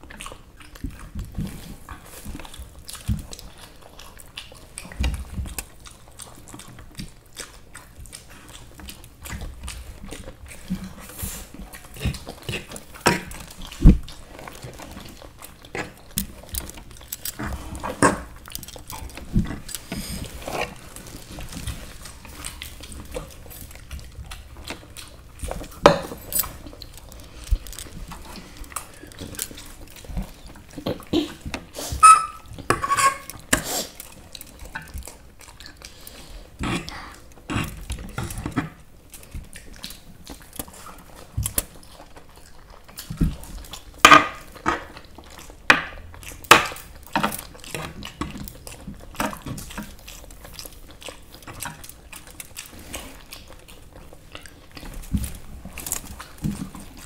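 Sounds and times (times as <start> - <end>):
chewing: 0.0 - 57.0
slurping: 10.4 - 34.8.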